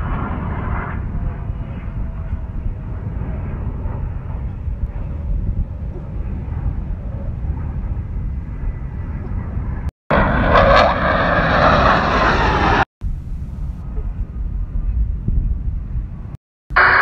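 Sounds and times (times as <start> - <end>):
loud jet roar: 0.0 - 5.2, 6.2 - 12.9, 16.7 - 17.0
military jets flying over: 0.0 - 13.7
wind rumbling on microphone: 0.0 - 16.4.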